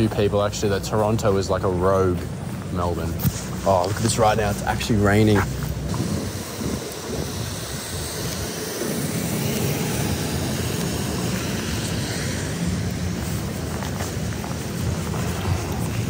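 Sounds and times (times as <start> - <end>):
traffic on wet street: 0.0 - 16.0.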